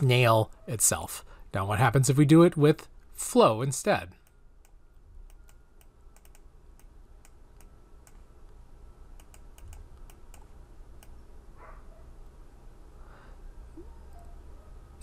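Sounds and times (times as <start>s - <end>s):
low room hum: 0.0s - 15.0s
keyboard and mouse clicking: 4.2s - 8.2s, 9.1s - 11.2s.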